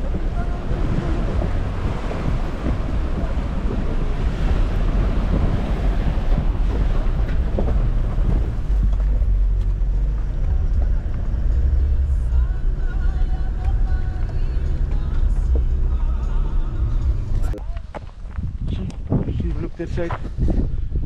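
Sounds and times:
wind buffeting microphone: 0.0s - 11.4s, 16.8s - 21.0s.

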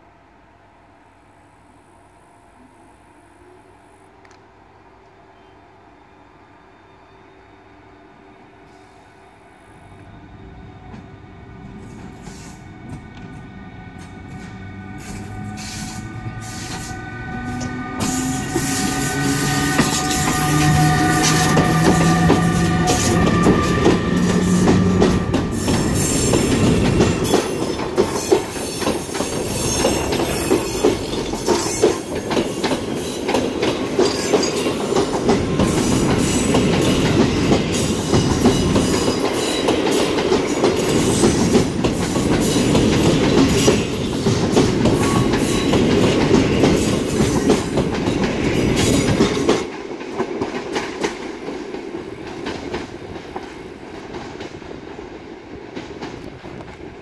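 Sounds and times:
train wheels clattering over rail joints: 17.6s - 54.6s.

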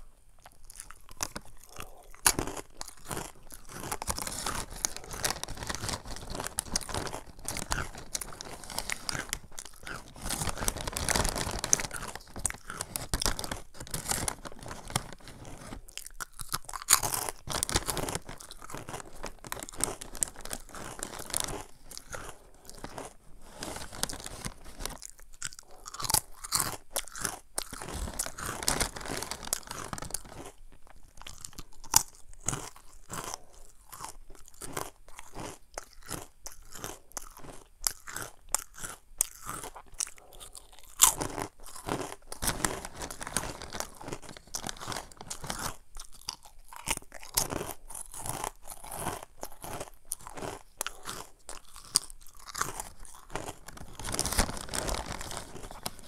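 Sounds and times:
crunching and chewing crispy snack: 0.0s - 56.0s.

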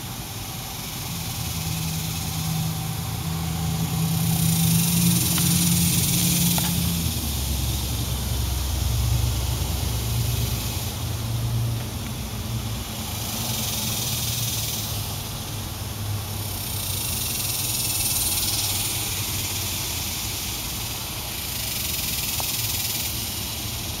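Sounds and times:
cicadas singing: 0.0s - 24.0s.

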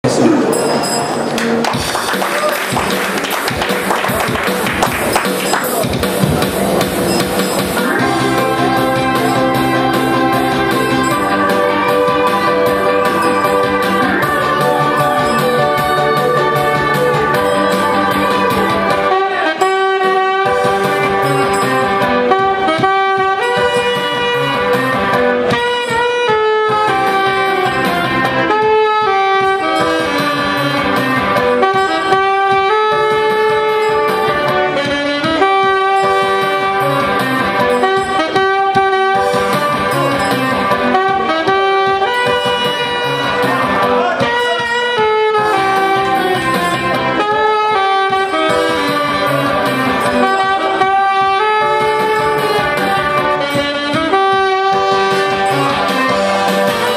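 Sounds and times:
backing music with steady beat: 0.0s - 56.9s
saxophone melody: 0.0s - 56.9s.

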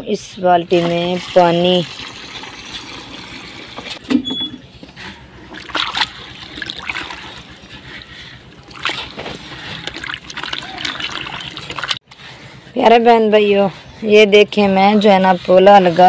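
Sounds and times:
water pouring into bucket: 0.8s - 3.8s, 5.5s - 7.5s, 8.7s - 12.0s
hand squelching mud: 5.5s - 12.0s.

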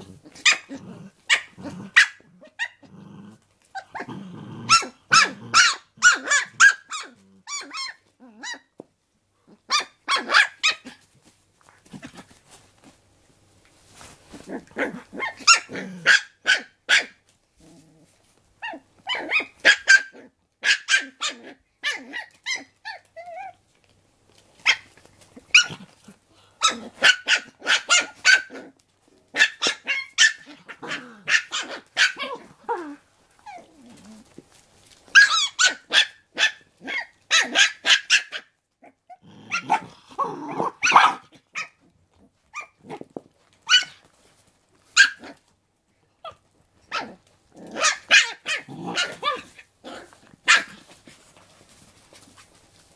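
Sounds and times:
dog growling: 0.0s - 7.5s, 14.4s - 16.2s, 29.8s - 34.4s, 38.8s - 43.1s, 46.9s - 51.0s
puppy yapping: 0.3s - 2.8s, 4.7s - 8.7s, 9.7s - 11.0s, 14.8s - 17.2s, 18.6s - 23.5s, 24.6s - 25.8s, 26.6s - 28.7s, 29.3s - 33.7s, 35.1s - 41.8s, 43.6s - 44.0s, 45.0s - 45.4s, 46.2s - 51.0s.

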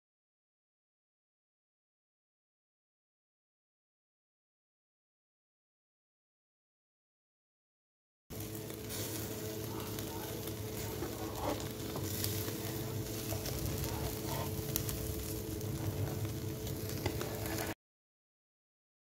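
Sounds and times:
faint steady hum: 8.3s - 17.8s
meat sizzling over charcoal: 8.3s - 17.8s.

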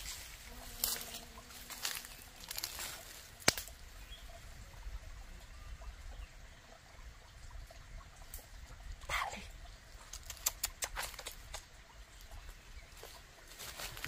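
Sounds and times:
rustling in dry undergrowth: 0.0s - 4.0s, 12.5s - 14.0s.

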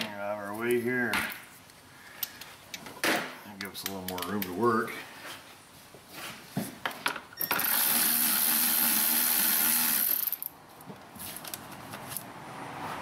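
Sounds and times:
electric ratchet running: 7.4s - 10.5s.

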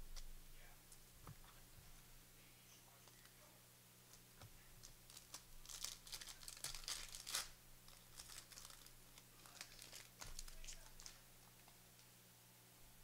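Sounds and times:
wrappers crinkling: 4.1s - 11.8s.

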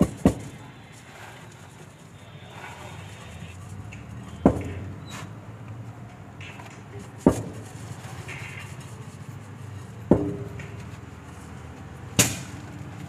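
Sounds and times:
metal tumbler knocks: 10.1s - 11.0s.

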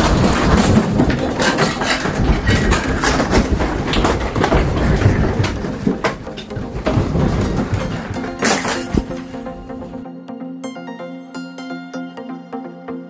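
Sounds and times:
objects rattling and clattering: 0.0s - 10.0s.

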